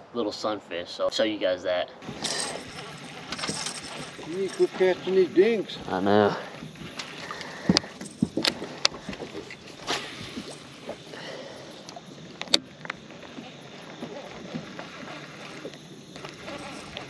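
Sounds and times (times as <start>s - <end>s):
hiss of wind and water: 2.0s - 17.0s
clicks and knocks on a boat: 6.6s - 11.0s.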